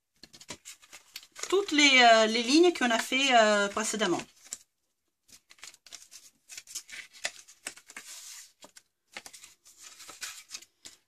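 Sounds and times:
paper folding and rustling: 0:00.0 - 0:11.0.

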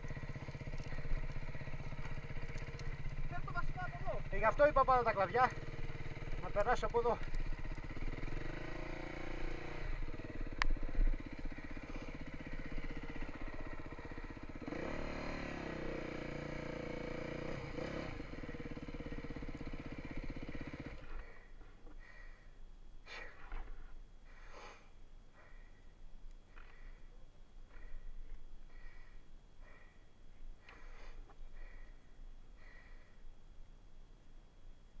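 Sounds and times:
motorcycle engine revving: 0:00.0 - 0:21.4.

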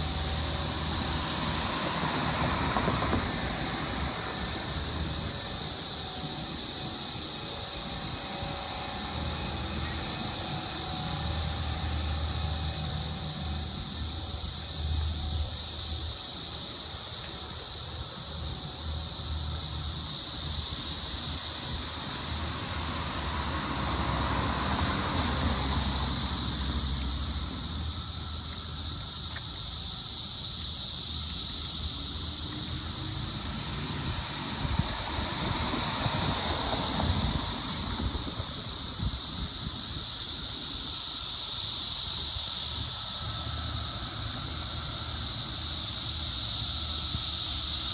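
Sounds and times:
vehicle passing: 0:00.0 - 0:17.4, 0:18.4 - 0:29.3, 0:31.8 - 0:39.6
high-pitched droning hiss: 0:00.0 - 0:47.9
low rumble of wind or traffic: 0:00.0 - 0:47.9.

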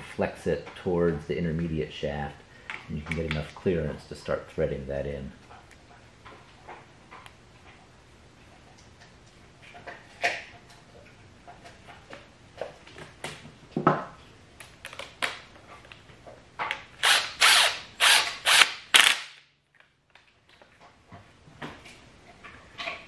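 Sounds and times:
cordless power driver bursts: 0:17.0 - 0:19.3.

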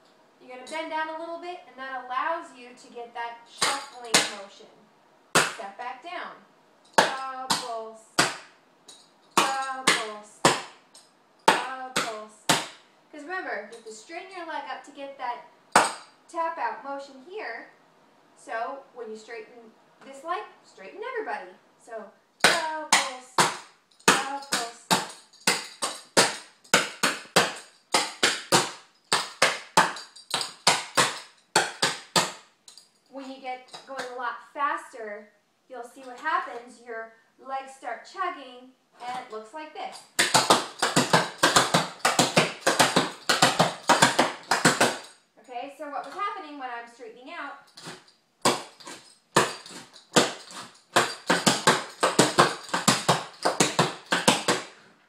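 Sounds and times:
clogging taps on hard floor: 0:40.2 - 0:45.1.

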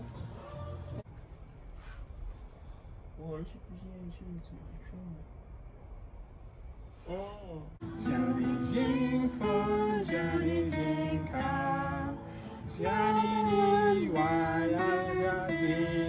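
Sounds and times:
acoustic guitar: 0:07.8 - 0:16.0
woman and man singing: 0:07.8 - 0:16.0.

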